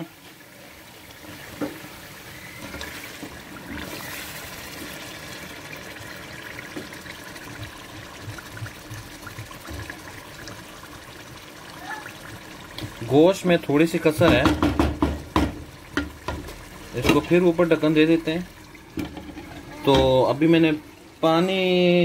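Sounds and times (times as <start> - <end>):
thick sauce bubbling: 0.3 - 21.2
wooden spatula scraping pot: 19.0 - 20.2.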